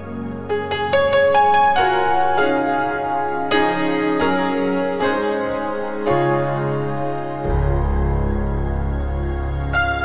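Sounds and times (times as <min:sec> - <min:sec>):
orchestral film music chords: 0:03.5 - 0:10.0.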